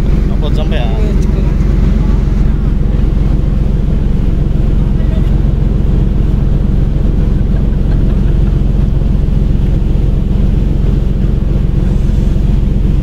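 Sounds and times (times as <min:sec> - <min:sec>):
boat diesel engine running: 0:00.0 - 0:13.0.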